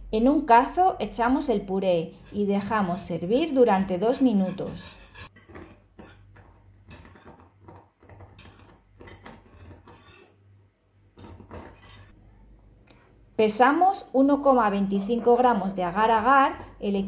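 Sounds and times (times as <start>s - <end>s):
whisk scraping a saucepan: 1.8s - 10.4s, 11.2s - 12.2s.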